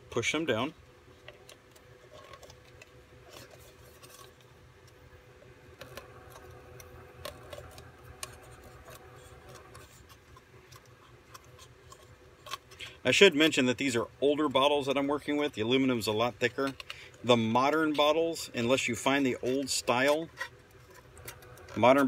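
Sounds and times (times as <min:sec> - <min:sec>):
faint steady hum: 0:00.0 - 0:22.0
aluminum clicking and crinkling: 0:00.4 - 0:22.0.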